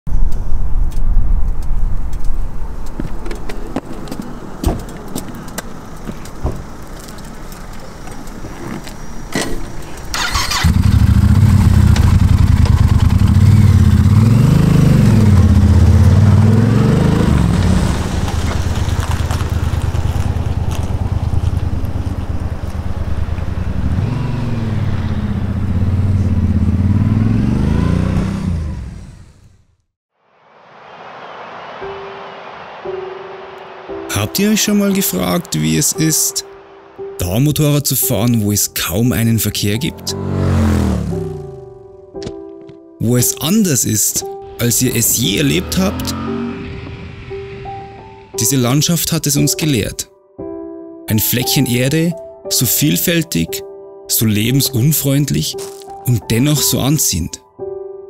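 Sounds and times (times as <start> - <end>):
motorcycle engine starting and revving: 6.7 - 29.8, 39.8 - 41.8, 45.2 - 48.2.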